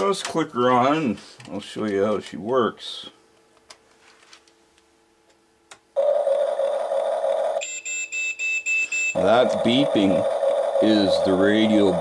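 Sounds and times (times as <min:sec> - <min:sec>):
rough electronic sound effect: 0:09.2 - 0:12.0.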